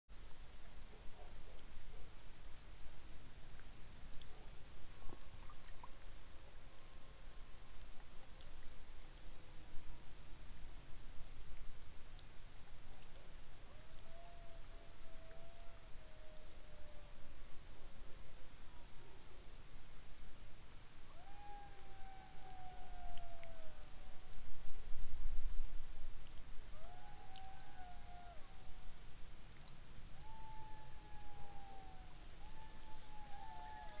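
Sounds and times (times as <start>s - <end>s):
insects chorus: 0.1s - 34.0s
jackals howling in distance: 21.1s - 23.8s, 26.7s - 28.9s, 30.2s - 34.0s.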